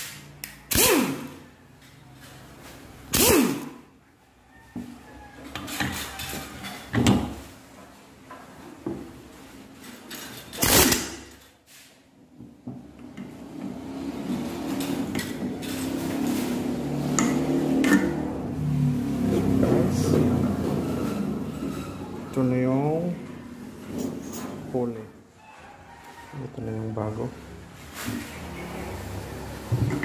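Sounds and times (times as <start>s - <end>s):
power tool bursts: 0.7s - 1.4s, 3.1s - 3.8s, 10.6s - 11.2s.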